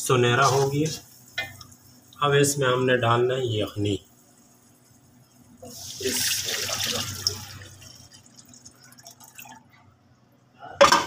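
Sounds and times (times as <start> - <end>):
stock sizzling in hot oil: 0.3 - 2.3, 4.1 - 8.7
liquid pouring stream: 4.2 - 9.7.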